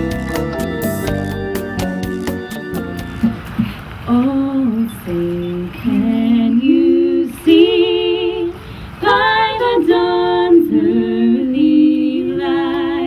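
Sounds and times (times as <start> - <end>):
woman singing unaccompanied: 4.0 - 13.0.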